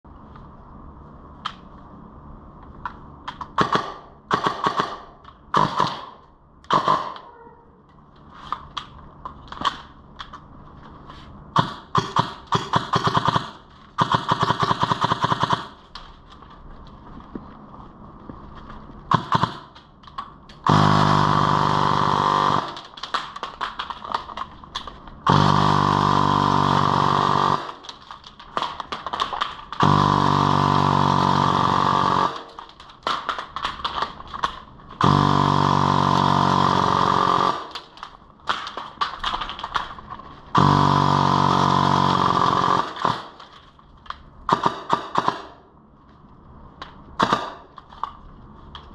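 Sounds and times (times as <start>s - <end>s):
airsoft gun firing full-auto: 3.6s - 7.2s, 11.6s - 15.8s, 19.1s - 19.8s, 20.6s - 22.9s, 25.2s - 27.8s, 29.8s - 33.4s, 35.0s - 37.9s, 40.6s - 43.4s, 44.5s - 45.6s, 47.2s - 47.7s.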